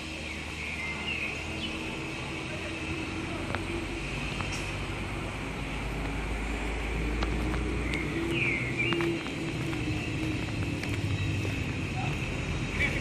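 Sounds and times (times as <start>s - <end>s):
bird chirp: 0.0s - 3.1s, 7.6s - 13.0s
road traffic hum: 0.0s - 13.0s.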